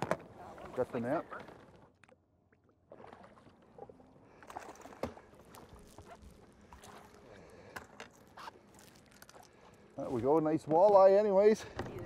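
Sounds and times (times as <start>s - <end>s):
water splashing against boat: 2.6s - 8.6s.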